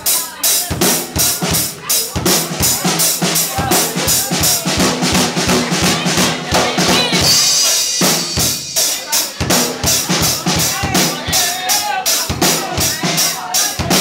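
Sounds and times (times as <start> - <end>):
drum kit playing fast groove: 0.0 - 14.0.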